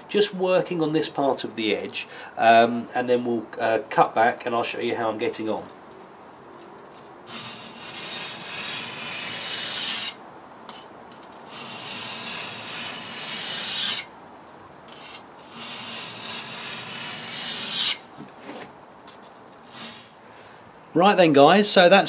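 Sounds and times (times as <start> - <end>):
blade scraping on whetstone: 5.6 - 14.1, 14.9 - 20.2.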